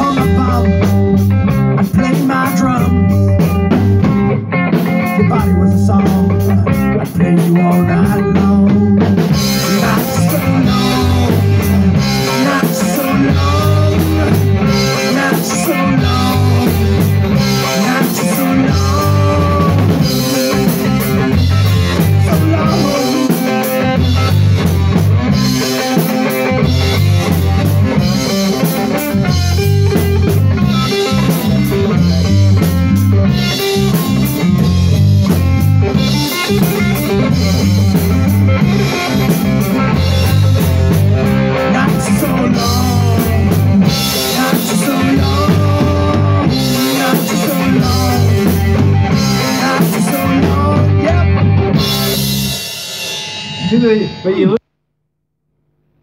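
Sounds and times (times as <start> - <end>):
drum kit beat: 0.0 - 54.8
guitar: 0.0 - 54.8.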